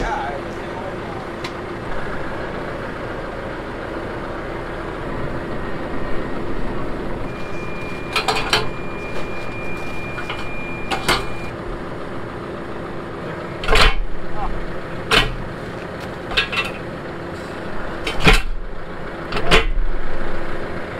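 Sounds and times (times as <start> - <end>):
tractor engine idling: 0.0 - 20.9
steady high tone: 4.6 - 11.6
metal clanks: 7.3 - 11.5, 13.6 - 14.1, 15.0 - 18.6.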